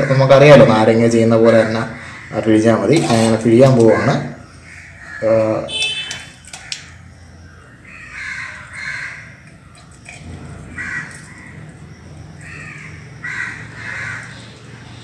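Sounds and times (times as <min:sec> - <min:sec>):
crows cawing: 0:01.5 - 0:07.0, 0:07.8 - 0:09.6, 0:10.6 - 0:11.7, 0:12.4 - 0:14.6.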